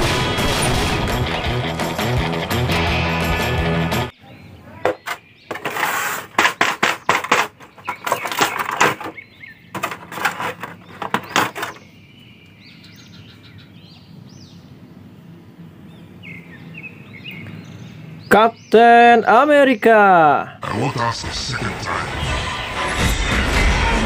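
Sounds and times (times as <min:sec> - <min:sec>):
low steady background noise: 0:07.2 - 0:21.1.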